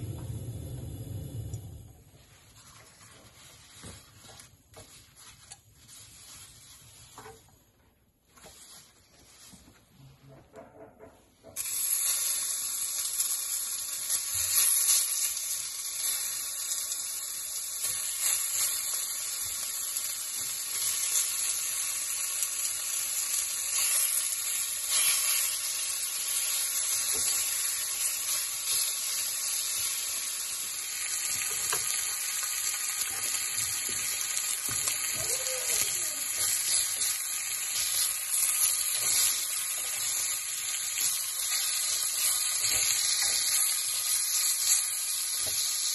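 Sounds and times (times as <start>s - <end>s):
meat sizzling in clay pot: 11.4s - 45.9s.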